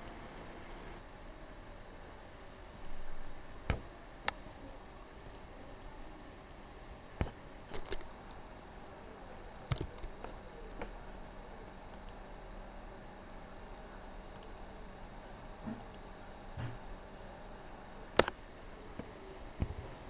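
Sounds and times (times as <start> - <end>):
faint steady hiss: 0.0 - 20.0
computer mouse clicks: 5.2 - 6.6, 7.2 - 8.7, 9.6 - 11.0, 11.9 - 12.2, 14.3 - 14.6, 18.2 - 18.4.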